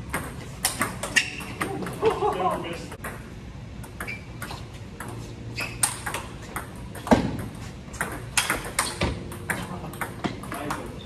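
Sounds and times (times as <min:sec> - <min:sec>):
ping pong ball clicking off paddles: 0:00.1 - 0:05.2, 0:05.8 - 0:11.0
ball bouncing on table: 0:05.8 - 0:11.0.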